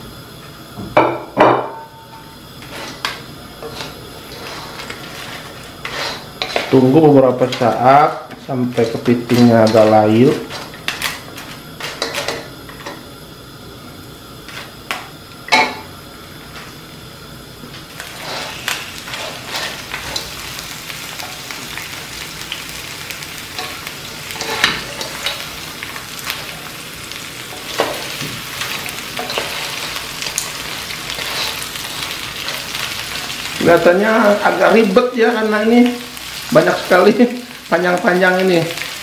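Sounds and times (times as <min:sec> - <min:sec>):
crab frying in oil sizzling: 0:00.0 - 0:39.0
wooden spatula scraping shells: 0:02.6 - 0:06.8, 0:18.0 - 0:20.4, 0:27.5 - 0:31.7.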